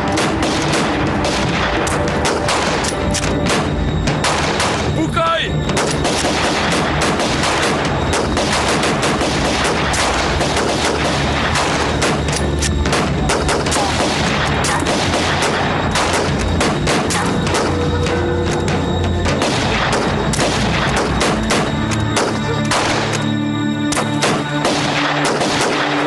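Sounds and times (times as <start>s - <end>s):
heavy rifle fire: 0.0s - 5.0s, 5.7s - 18.1s, 19.2s - 23.2s, 24.0s - 26.0s.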